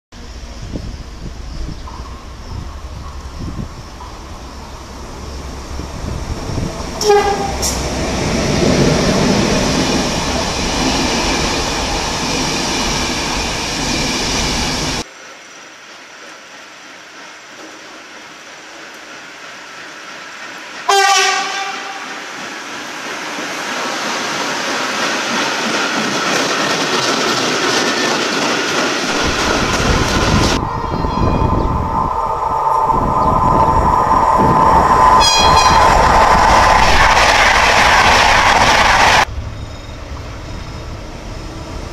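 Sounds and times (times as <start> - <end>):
train wheels rumbling on rails: 0.2 - 41.9
train horn blast: 7.0 - 7.8, 20.9 - 22.3, 35.2 - 35.8.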